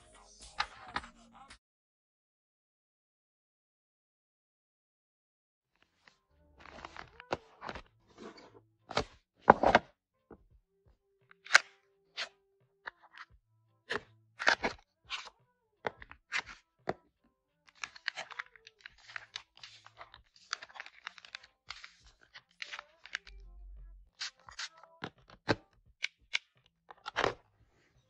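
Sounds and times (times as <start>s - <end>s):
plastic cases clicking and tapping: 17.7s - 23.4s
plastic packaging crinkling: 17.7s - 23.4s.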